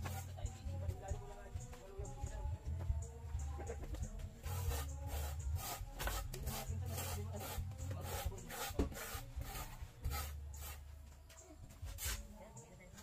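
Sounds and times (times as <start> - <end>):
hand sanding a wall: 4.4 - 10.9.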